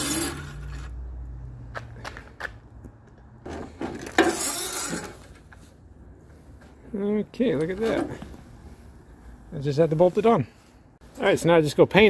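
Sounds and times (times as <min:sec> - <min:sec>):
metal rattling and scraping: 0:03.4 - 0:05.7.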